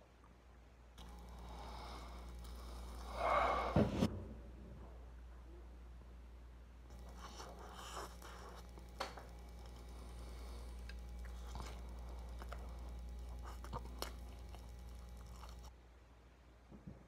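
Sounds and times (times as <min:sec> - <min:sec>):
steady low hum: 0:00.6 - 0:15.9
person chewing food: 0:06.9 - 0:15.7.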